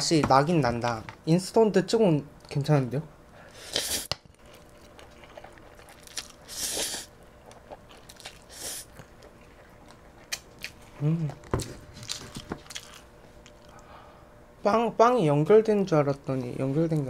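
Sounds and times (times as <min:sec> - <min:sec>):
wet chewing: 0:03.7 - 0:10.8, 0:11.9 - 0:13.9
person slurping noodles: 0:06.5 - 0:07.1.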